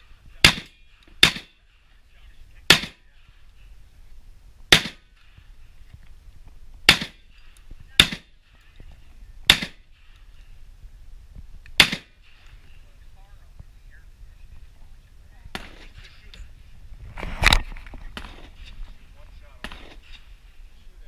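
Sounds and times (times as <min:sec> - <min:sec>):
shotgun shots: 0:00.4 - 0:01.7, 0:02.7 - 0:03.1, 0:04.7 - 0:05.3, 0:06.9 - 0:07.3, 0:08.0 - 0:08.4, 0:09.4 - 0:10.1, 0:11.8 - 0:12.4, 0:15.5 - 0:16.0, 0:18.1 - 0:18.7, 0:19.6 - 0:20.2.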